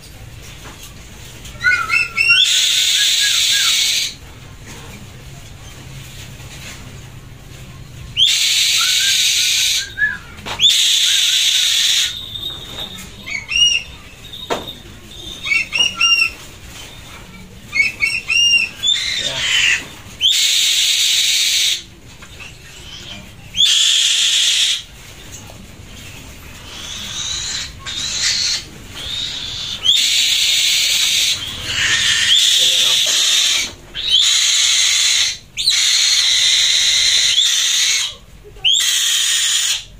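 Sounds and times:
bird chirping calls: 0:01.5 - 0:04.2, 0:07.9 - 0:24.9, 0:26.0 - 0:39.9
bird harsh screeches: 0:01.6 - 0:04.2, 0:08.2 - 0:14.2, 0:15.2 - 0:17.1, 0:17.7 - 0:24.9, 0:26.6 - 0:39.9.

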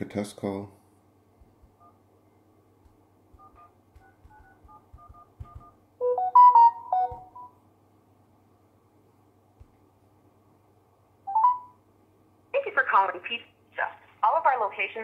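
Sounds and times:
finger taps on phone: 0:02.8 - 0:05.8, 0:07.0 - 0:07.5
touch-tone key beeps: 0:03.4 - 0:07.5
phone notification chime: 0:06.0 - 0:07.5, 0:11.3 - 0:11.8.

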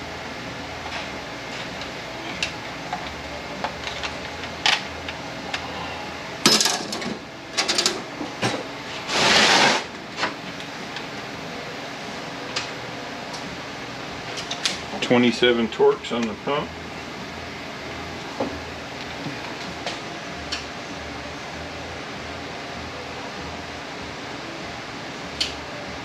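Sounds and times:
tools and parts clicking: 0:02.4 - 0:05.6.

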